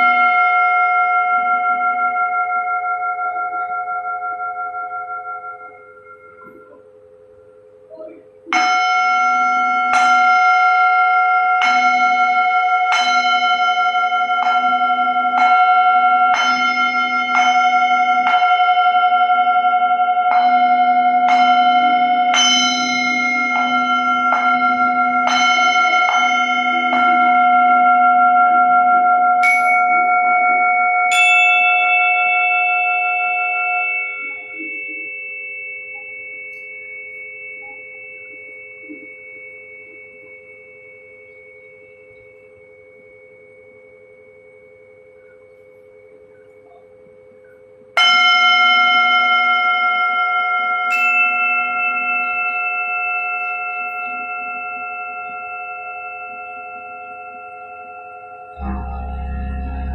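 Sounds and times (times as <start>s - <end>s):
metal bell ringing: 8.5s - 43.4s, 48.0s - 59.9s
low hum: 58.6s - 59.9s.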